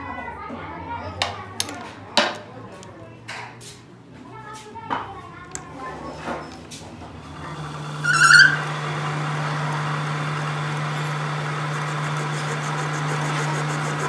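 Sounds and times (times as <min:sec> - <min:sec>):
lathe motor humming: 0:07.1 - 0:14.0
lathe start-up squeal: 0:07.3 - 0:14.0.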